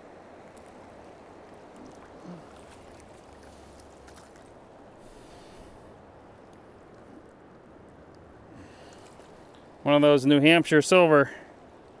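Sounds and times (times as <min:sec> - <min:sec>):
river water flowing: 0:00.0 - 0:12.0
small splash: 0:01.5 - 0:04.6.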